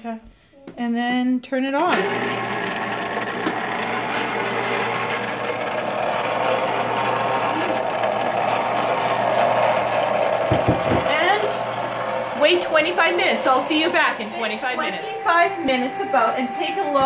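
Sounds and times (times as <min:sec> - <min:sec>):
ice cream maker motor humming: 0:01.8 - 0:17.0.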